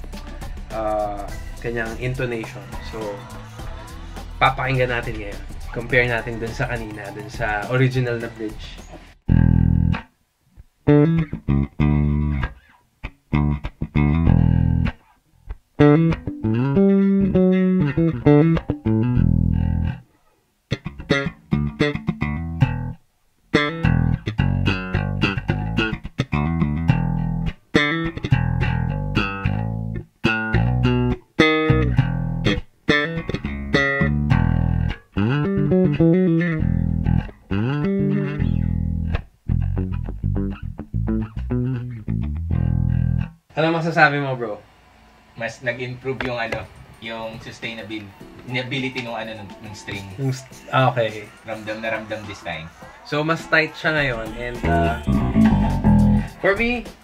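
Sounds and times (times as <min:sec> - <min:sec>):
bass guitar plucked fingerstyle: 0:00.0 - 0:20.1, 0:20.7 - 0:23.0, 0:23.6 - 0:43.4, 0:54.6 - 0:56.4.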